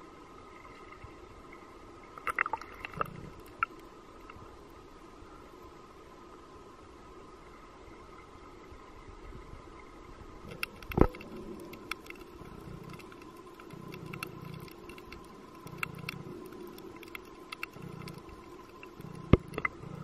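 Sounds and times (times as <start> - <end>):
low muffled underwater wash: 0.0 - 20.0
underwater clicks and crackles: 0.6 - 4.5, 10.4 - 20.0.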